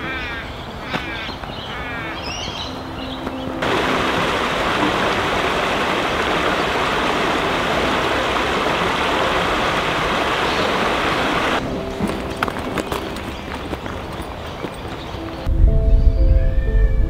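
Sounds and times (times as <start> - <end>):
creek water running over rocks: 3.3 - 15.4.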